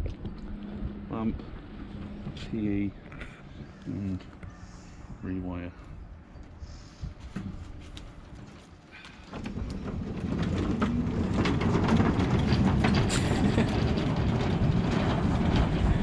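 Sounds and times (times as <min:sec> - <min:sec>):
trolley wheels rumbling on boards: 0:07.3 - 0:16.0.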